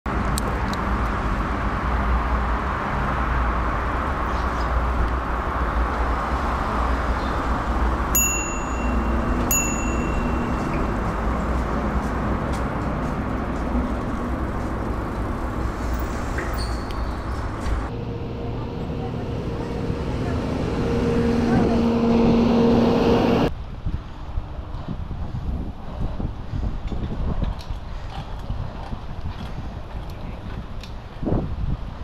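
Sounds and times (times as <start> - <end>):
bicycle tyre and wind rumble: 0.1 - 32.0
bicycle bell dinging: 8.1 - 11.2.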